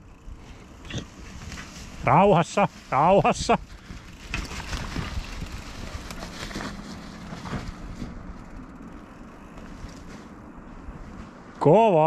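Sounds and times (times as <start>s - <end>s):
bike tyres over rocky ground: 0.0s - 12.0s
bike rattles and knocks: 0.1s - 11.5s
wind rumble on microphone: 3.1s - 8.7s.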